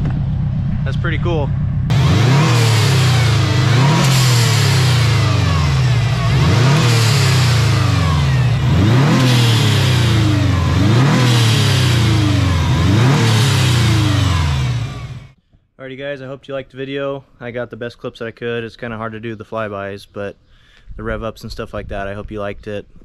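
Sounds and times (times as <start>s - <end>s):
car engine revving: 0.0s - 15.4s.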